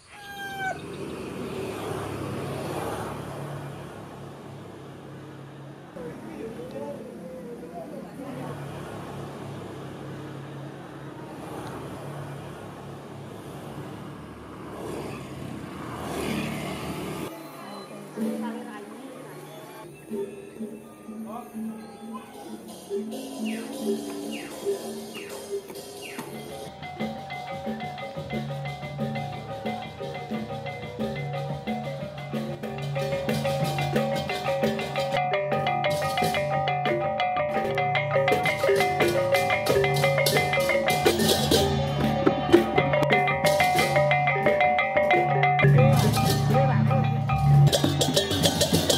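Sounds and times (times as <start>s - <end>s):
light traffic hum: 0.0s - 48.9s
motor scooter passing by: 0.2s - 19.9s
gong-chimes interlocking pattern: 19.8s - 48.9s.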